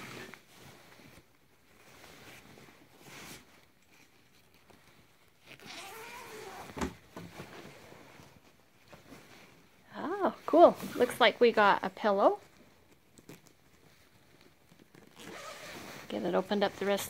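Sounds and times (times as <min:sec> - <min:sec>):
fabric rustling: 0:00.0 - 0:17.0.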